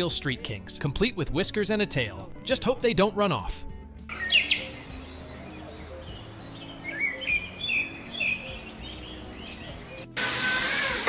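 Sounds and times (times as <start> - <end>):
birds chirping: 4.1 - 10.2.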